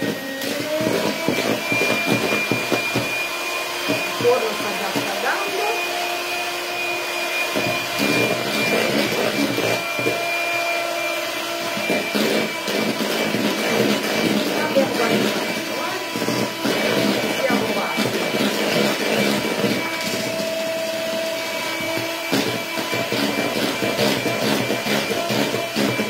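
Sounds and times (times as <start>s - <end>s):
electric mixer motor whine: 0.0s - 26.0s.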